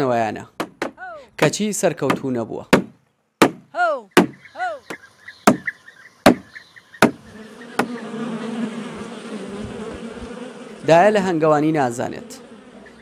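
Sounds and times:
sharp knocks: 0.6s - 1.0s, 2.1s - 7.2s, 7.8s - 8.0s
honeybees buzzing: 4.1s - 13.0s.

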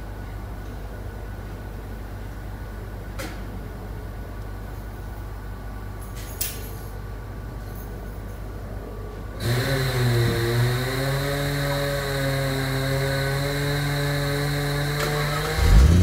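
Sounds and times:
car engine idling: 15.1s - 16.0s.

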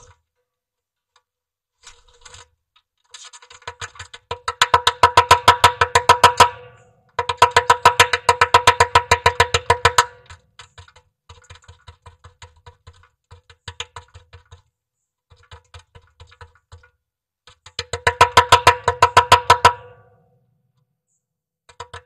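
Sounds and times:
woodpecker knocking on wood: 3.5s - 20.3s, 21.6s - 22.0s.

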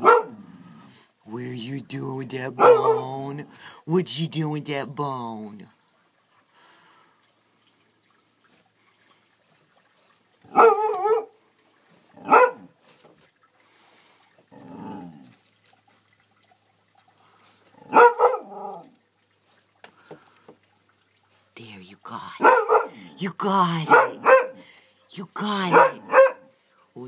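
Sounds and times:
dog barking: 0.0s - 0.4s, 2.6s - 3.1s, 10.5s - 11.4s, 12.2s - 12.7s, 17.8s - 18.8s, 22.4s - 23.0s, 23.9s - 24.6s, 25.7s - 26.5s.

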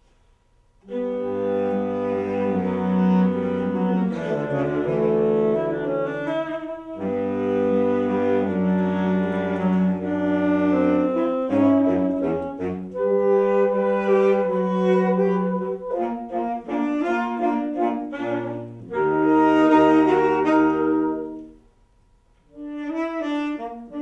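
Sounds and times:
saxophones playing chords: 0.8s - 21.8s, 22.5s - 24.0s.

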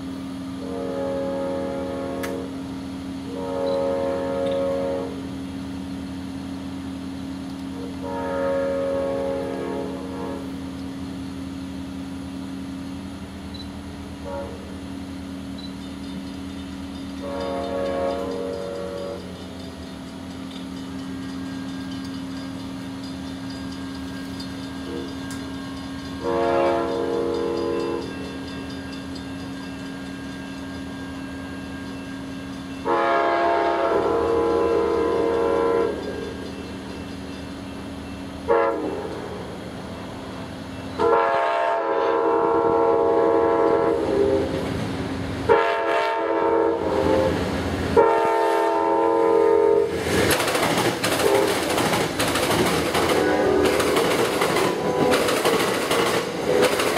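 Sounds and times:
diesel locomotive engine: 0.0s - 56.9s
train wheel noise: 0.0s - 56.9s
train air horn blasts: 0.5s - 5.4s, 7.7s - 10.7s, 14.1s - 14.9s, 17.2s - 19.8s, 24.8s - 28.5s, 32.8s - 36.3s, 38.4s - 40.4s, 41.0s - 44.7s, 45.4s - 50.0s, 51.1s - 51.8s, 53.0s - 56.9s.

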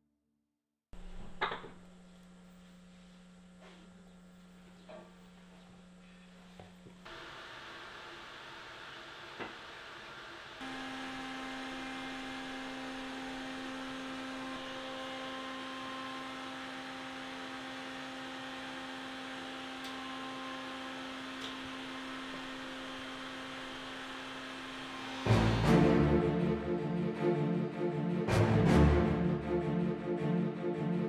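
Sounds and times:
steady electrical hum: 1.0s - 16.4s.

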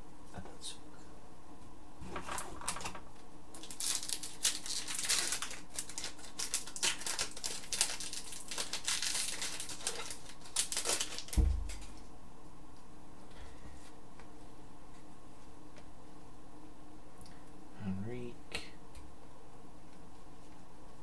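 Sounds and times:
dull thump: 11.4s - 11.8s.

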